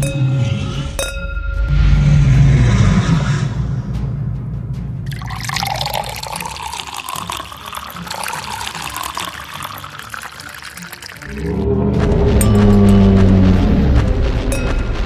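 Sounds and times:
water running and splashing: 0:05.1 - 0:15.0.

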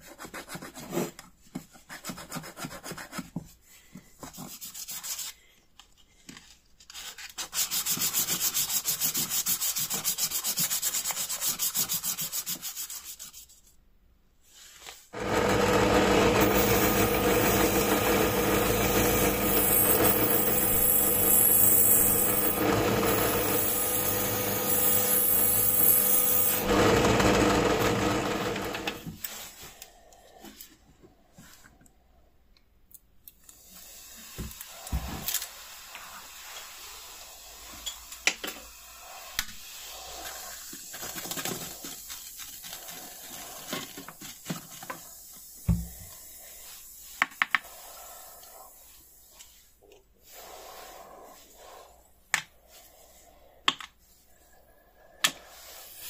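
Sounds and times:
bench power tool motor humming: 0:15.2 - 0:29.1
needle file rasping brass: 0:16.4 - 0:26.8.

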